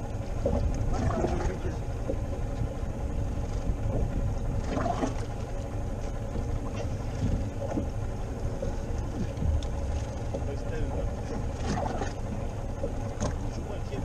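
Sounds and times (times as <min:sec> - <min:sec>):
sea noise: 0:00.0 - 0:14.0
wind buffeting microphone: 0:06.6 - 0:13.0.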